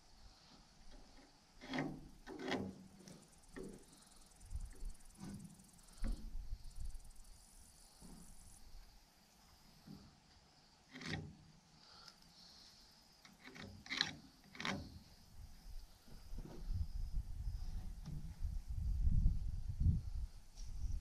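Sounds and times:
knocks and scrapes of hand work: 0:00.9 - 0:06.5, 0:10.9 - 0:11.4, 0:13.3 - 0:15.1
high insect buzz: 0:10.9 - 0:19.2
wind rumble on microphone: 0:15.4 - 0:21.0.

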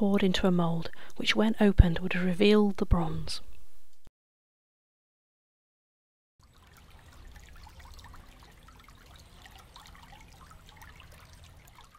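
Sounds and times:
water trickling: 0:06.4 - 0:11.9.

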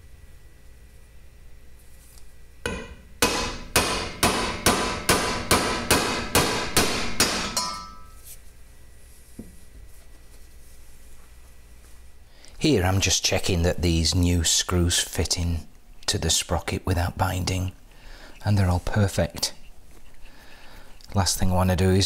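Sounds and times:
mallet striking metal seal driver: 0:02.6 - 0:08.1.

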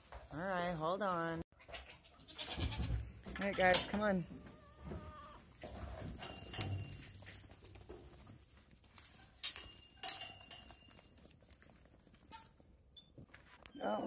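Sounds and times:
goat hooves on straw and dirt: 0:00.0 - 0:01.9, 0:02.6 - 0:13.7
sharp metallic clanks: 0:06.0 - 0:07.2, 0:09.4 - 0:10.9.

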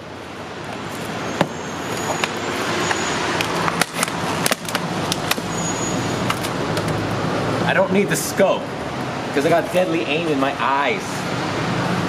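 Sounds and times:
steady background noise: 0:00.0 - 0:12.0
plastic packaging clicks and rattling: 0:03.4 - 0:05.4.

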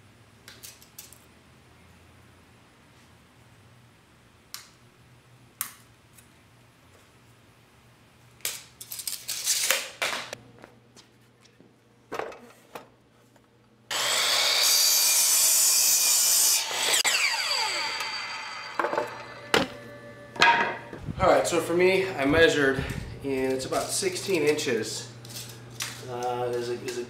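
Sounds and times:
miter saw cutting wood: 0:13.9 - 0:20.4.

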